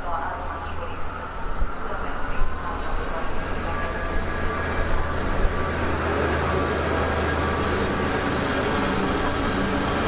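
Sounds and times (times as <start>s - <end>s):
diesel locomotive engine drone: 0.0s - 10.0s.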